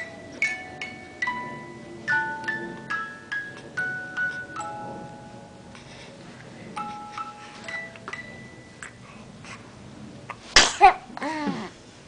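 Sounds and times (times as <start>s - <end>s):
music box chimes: 0.0s - 5.7s, 6.8s - 8.9s
loud sneeze: 10.6s - 11.1s.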